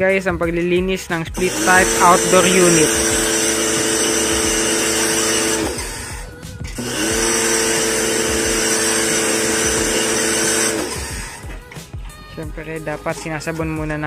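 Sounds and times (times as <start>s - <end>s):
electric pump running: 1.4s - 11.8s.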